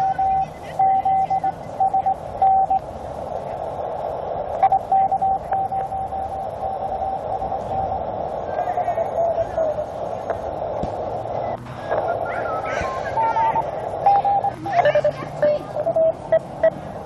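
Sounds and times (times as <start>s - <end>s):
morse code tone: 0.0s - 2.8s, 4.6s - 7.6s, 14.0s - 16.8s
radio band noise: 0.0s - 17.0s.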